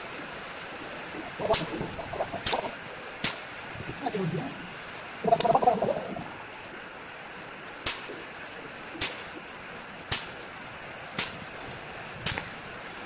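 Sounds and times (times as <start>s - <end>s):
rain hissing: 0.0s - 13.0s.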